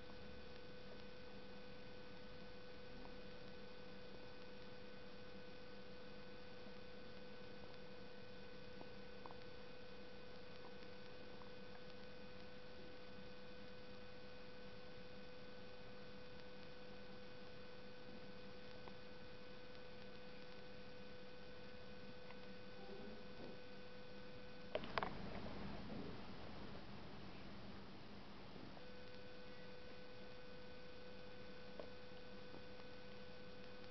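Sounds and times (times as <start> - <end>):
faint electrical hum: 0.0 - 33.9
low hiss: 0.0 - 33.9
faint ticks: 10.2 - 15.5, 18.2 - 21.0, 28.8 - 30.0, 31.2 - 33.9.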